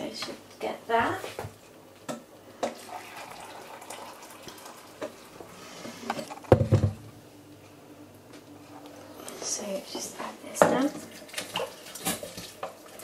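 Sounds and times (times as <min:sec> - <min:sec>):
water running into glass jug: 0:02.7 - 0:05.5.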